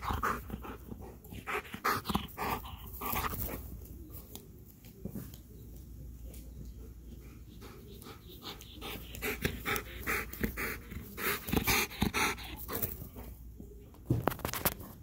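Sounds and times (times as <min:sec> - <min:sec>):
dog panting hard: 0:00.0 - 0:03.5, 0:07.2 - 0:13.0.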